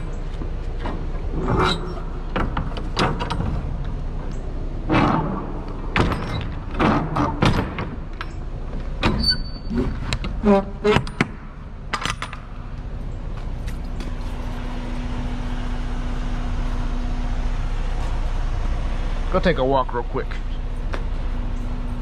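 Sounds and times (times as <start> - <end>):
metal door and latch clanking: 0.8 - 12.7
door creak: 1.4 - 3.6, 4.9 - 8.4, 9.0 - 12.4.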